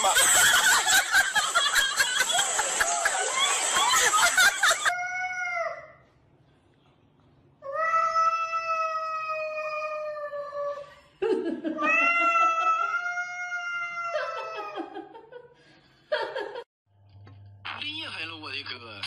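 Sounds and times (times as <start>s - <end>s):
cat yowling: 11.8s - 14.8s.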